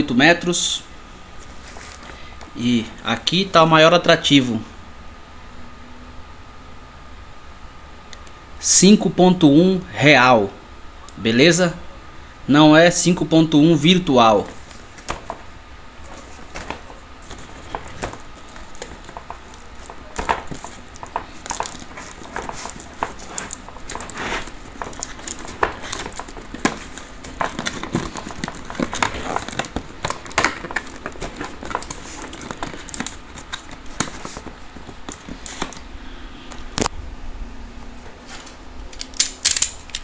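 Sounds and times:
plastic film crinkling: 14.4 - 35.9.

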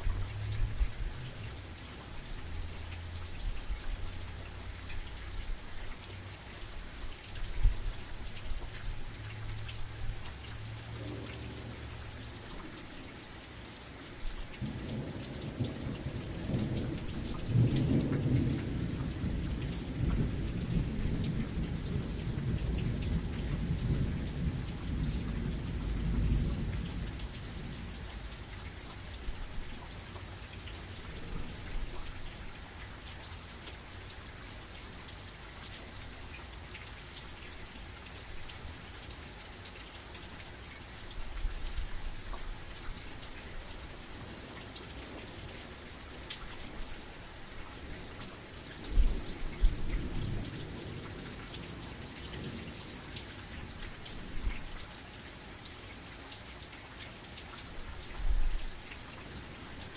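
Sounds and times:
steady rain falling: 0.0 - 59.9
low thunder rumbling: 14.6 - 28.3.

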